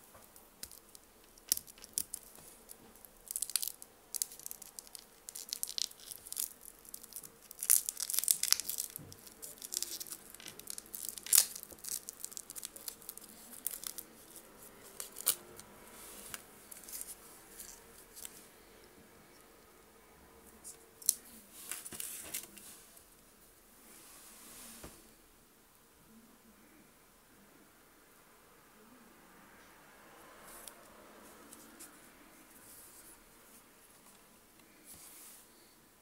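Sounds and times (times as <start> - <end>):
plastic film crinkling and tearing: 0.1 - 15.7.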